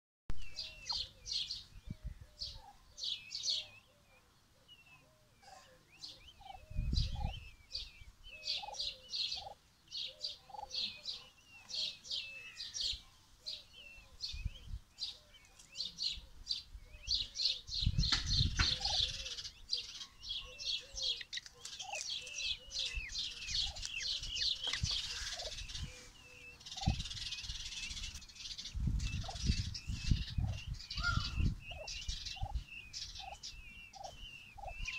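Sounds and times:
chicks peeping: 0.5 - 3.3, 5.8 - 13.0, 13.8 - 34.9
hen clucking softly: 10.3 - 11.3, 23.6 - 26.1, 33.2 - 34.9.

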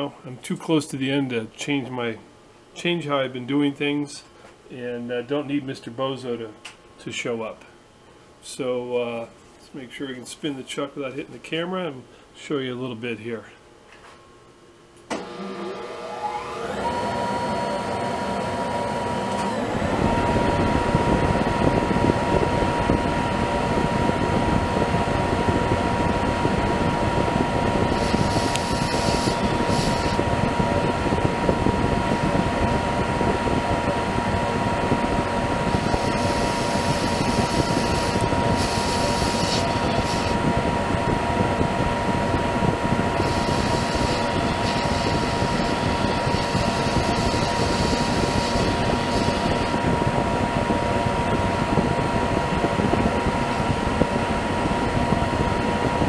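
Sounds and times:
lathe whining: 15.1 - 21.6, 27.6 - 50.2
cutting tool hissing: 27.9 - 30.2, 35.8 - 40.4, 43.2 - 49.8.

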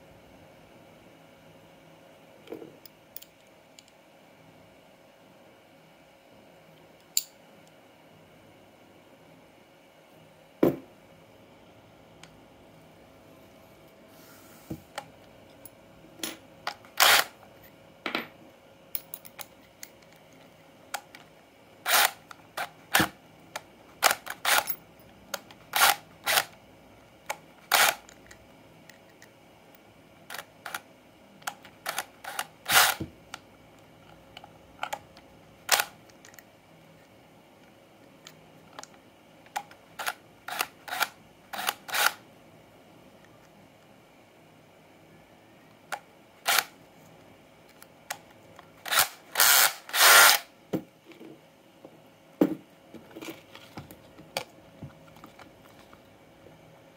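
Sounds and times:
sharp clicks and knocks of tools: 19.0 - 21.3.

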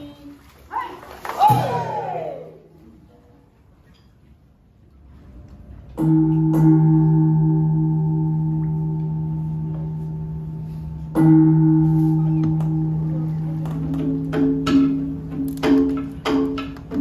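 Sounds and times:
deep-toned bell ringing: 6.0 - 15.4.

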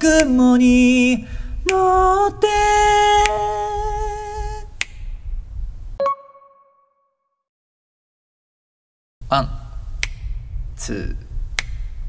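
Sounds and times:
man singing a cappella: 0.0 - 4.8
sharp click: 10.0 - 10.4, 11.6 - 11.8.

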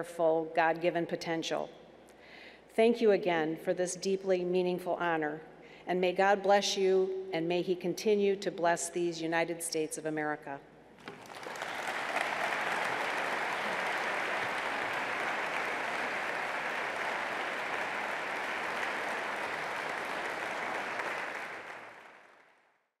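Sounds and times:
audience applauding: 11.0 - 22.6.

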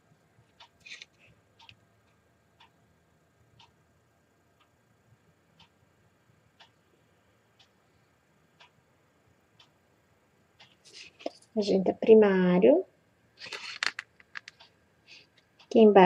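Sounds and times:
clicking scratch: 0.8 - 1.2, 13.4 - 15.3
clock ticking: 1.6 - 2.8, 3.5 - 3.8, 5.6 - 5.8, 6.5 - 6.8, 8.6 - 8.8, 9.5 - 9.8, 10.6 - 10.8.

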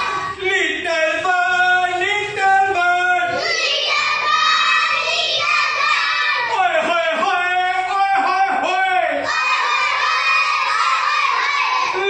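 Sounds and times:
children singing together: 0.0 - 0.4, 3.2 - 6.6, 9.2 - 12.0.

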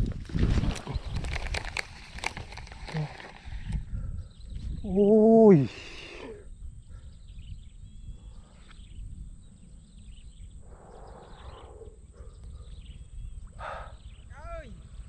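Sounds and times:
rustling: 0.0 - 3.8
faint bird chirps: 3.7 - 15.0.

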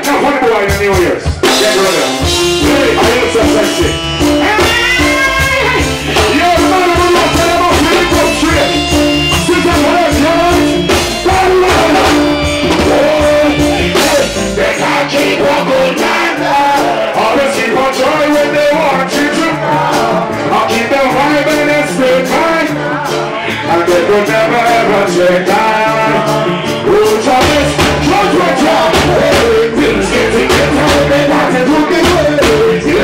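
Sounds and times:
man singing into microphone: 0.0 - 33.0
reggae band playing: 0.0 - 33.0
deep bass: 0.6 - 15.8, 23.7 - 33.0.

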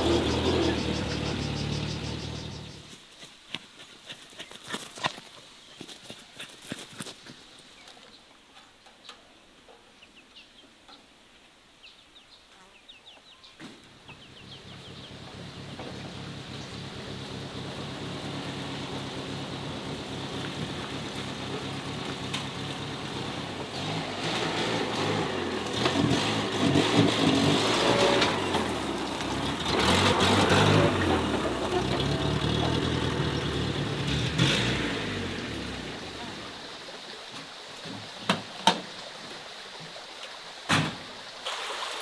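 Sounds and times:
van engine running: 0.0 - 2.9, 14.0 - 36.5.

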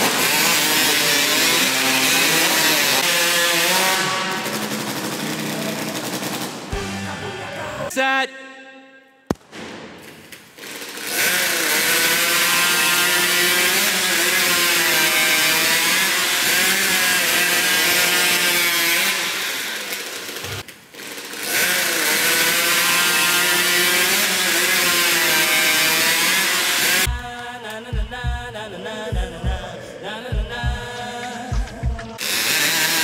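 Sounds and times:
chainsaw cutting a log: 0.0 - 7.0, 10.6 - 27.8, 32.2 - 33.0.

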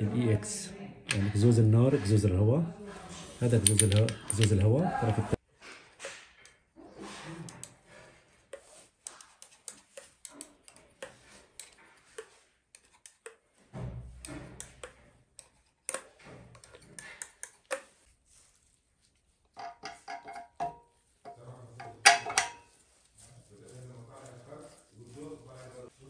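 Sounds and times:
oil can clicking and tapping: 19.6 - 22.6.

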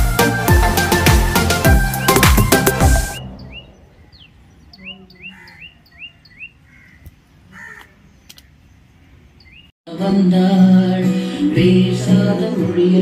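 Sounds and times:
birds chirping: 1.6 - 9.8.

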